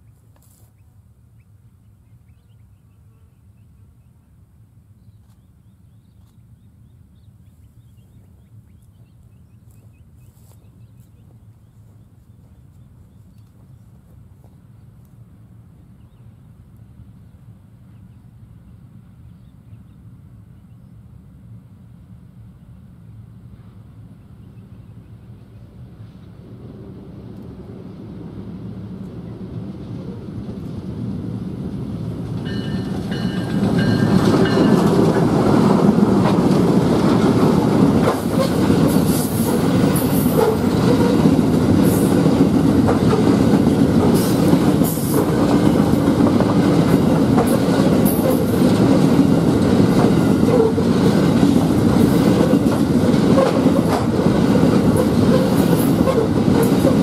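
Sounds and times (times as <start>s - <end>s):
diesel locomotive passing: 5.8s - 57.0s
wheels clacking over rail joints: 32.2s - 57.0s.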